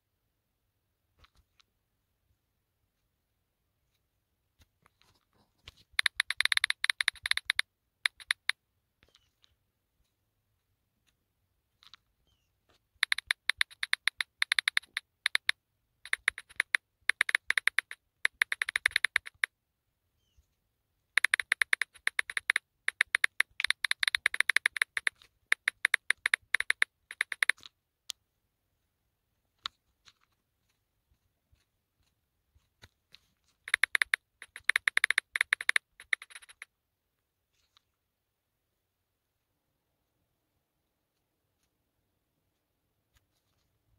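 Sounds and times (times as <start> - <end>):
phone keyboard typing clicks: 5.9 - 8.6, 13.0 - 19.5, 21.2 - 27.7, 33.6 - 36.7.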